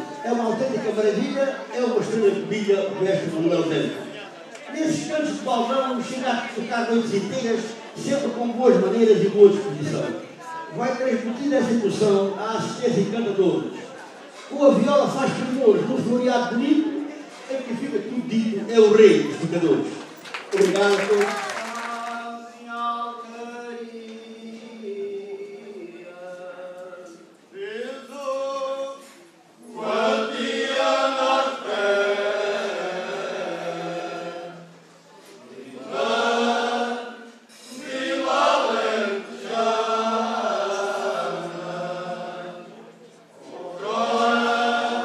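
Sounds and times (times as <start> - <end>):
male choir singing unaccompanied: 0.0 - 13.7, 21.6 - 45.0
solo male voice singing: 21.8 - 29.2.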